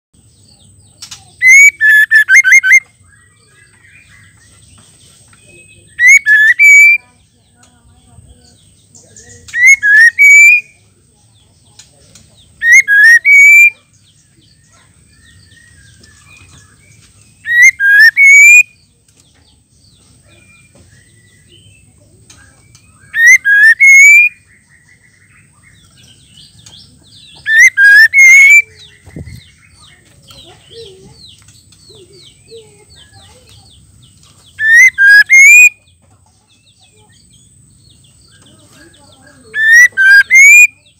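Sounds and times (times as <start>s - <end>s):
bird whistled call: 1.4s - 2.9s, 6.0s - 7.0s, 9.5s - 10.7s, 12.6s - 13.8s, 17.4s - 18.8s, 22.8s - 24.5s, 27.2s - 29.4s, 34.6s - 35.8s, 39.4s - 40.9s.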